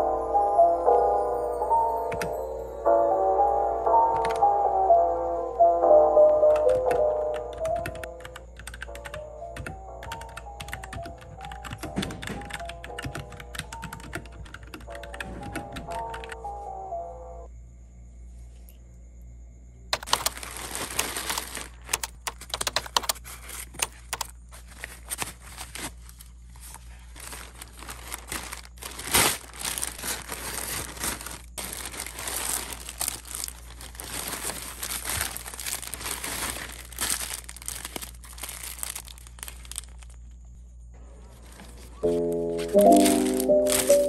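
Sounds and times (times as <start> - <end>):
plastic mailer bag crinkling: 20.0 - 40.3, 41.3 - 44.0
plastic packets rustling: 20.0 - 40.3, 41.3 - 44.0.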